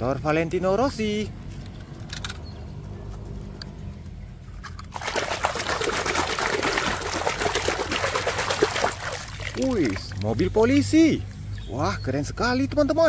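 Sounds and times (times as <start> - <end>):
water splashing and sloshing: 4.6 - 10.5.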